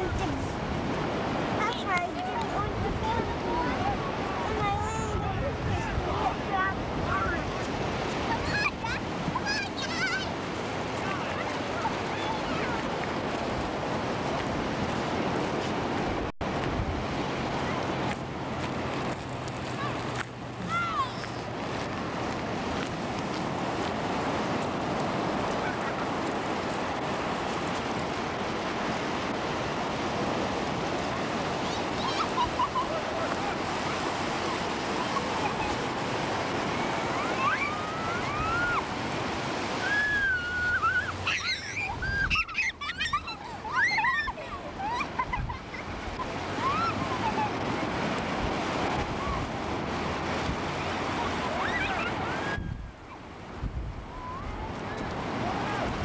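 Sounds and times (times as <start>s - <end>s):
ocean surf breaking: 0.0s - 56.0s
short high rising and falling calls: 39.8s - 44.4s.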